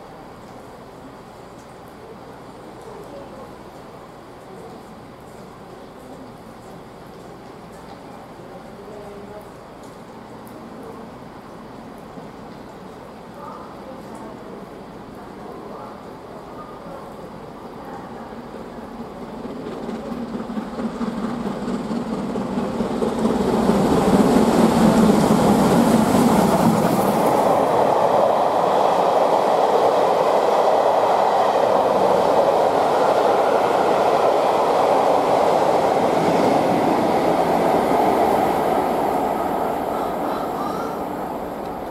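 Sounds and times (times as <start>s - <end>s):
steam locomotive passing: 17.3s - 41.9s.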